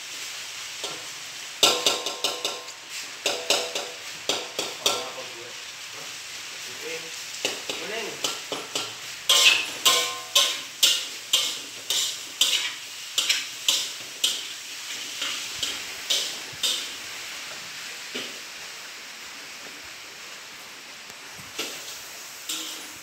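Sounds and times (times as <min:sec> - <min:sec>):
food sizzling: 0:00.0 - 0:23.0
metal ladle scraping a wok: 0:08.7 - 0:16.9, 0:21.6 - 0:23.0.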